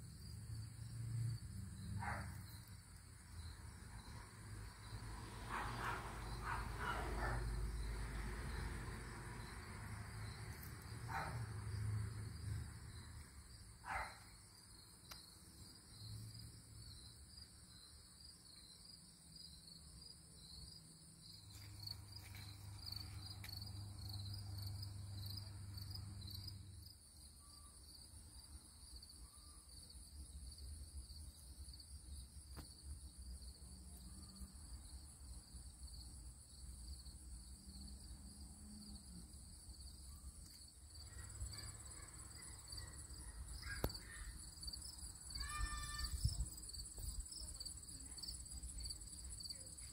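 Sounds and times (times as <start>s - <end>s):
high-pitched insect chirping: 39.8s - 49.8s.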